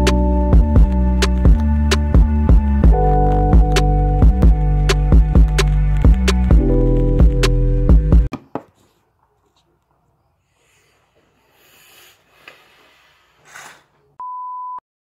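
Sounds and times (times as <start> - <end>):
soft rustling: 8.7 - 14.1.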